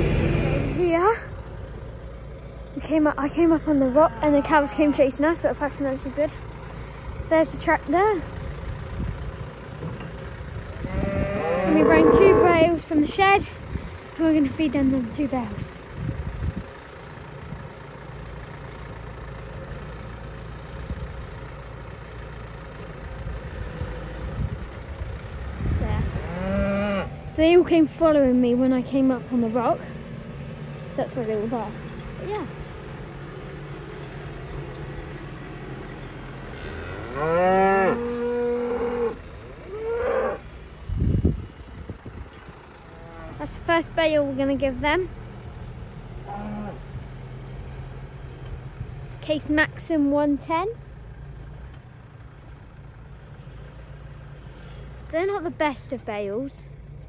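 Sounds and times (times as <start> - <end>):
tractor diesel engine idling: 0.0 - 57.0
cattle mooing: 10.7 - 12.8, 26.2 - 27.2, 36.4 - 40.4, 42.8 - 43.5, 46.2 - 46.9.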